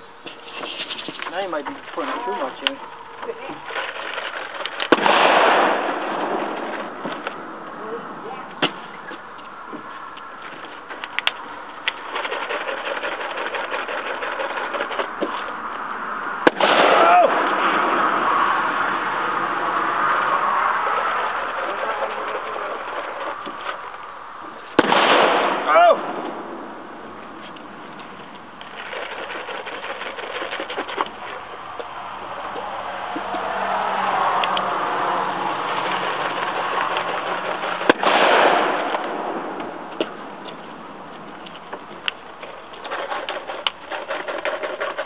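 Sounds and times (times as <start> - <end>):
ground firework crackling: 0.0 - 45.0
firework pops: 4.8 - 7.4, 16.4 - 17.9, 24.7 - 26.5, 37.7 - 40.6.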